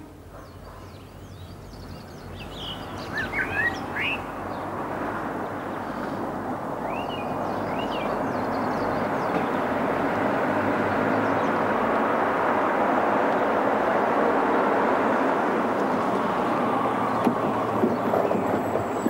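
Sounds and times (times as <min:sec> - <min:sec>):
birds chirping: 0:00.0 - 0:09.8
car approaching: 0:01.7 - 0:19.0.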